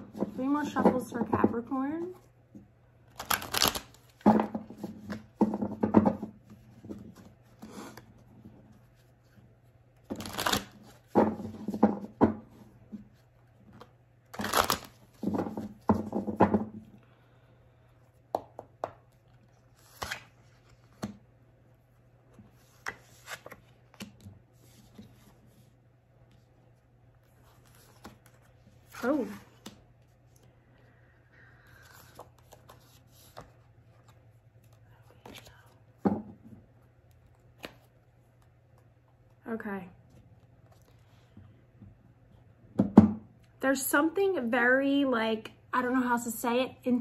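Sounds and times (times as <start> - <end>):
cards being shuffled: 3.1 - 5.4, 10.0 - 11.8, 12.9 - 16.0, 18.3 - 21.3, 22.3 - 30.5, 31.7 - 35.8, 37.0 - 39.4, 40.1 - 41.3.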